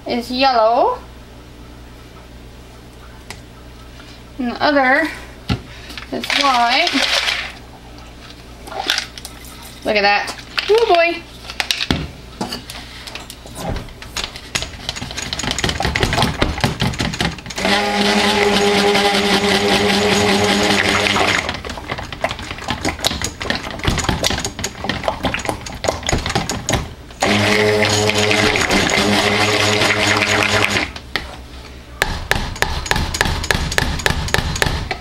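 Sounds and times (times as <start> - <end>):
stick blender motor hum: 17.5 - 31.0.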